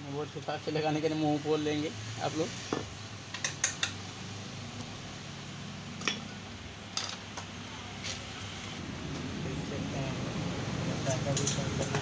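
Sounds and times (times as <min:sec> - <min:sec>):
metal stand clicks and clinks: 0:11.3 - 0:12.0.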